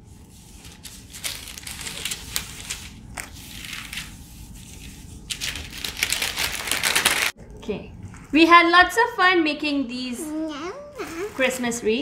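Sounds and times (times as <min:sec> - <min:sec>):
plastic wrap crinkling: 0:00.6 - 0:04.1, 0:05.2 - 0:07.4.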